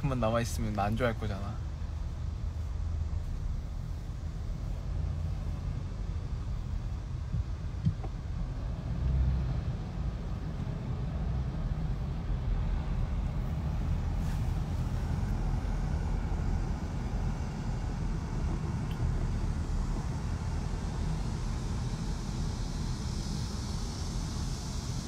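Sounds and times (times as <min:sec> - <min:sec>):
car cabin rumble: 0:00.0 - 0:22.2.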